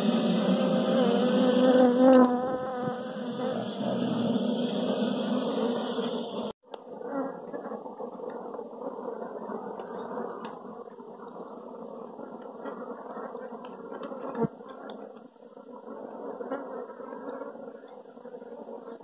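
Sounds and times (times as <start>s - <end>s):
honeybee colony humming: 0.0s - 15.0s.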